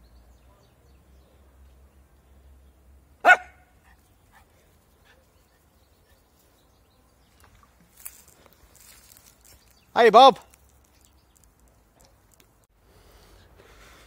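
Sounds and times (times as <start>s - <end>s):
dog barking: 3.2s - 4.0s.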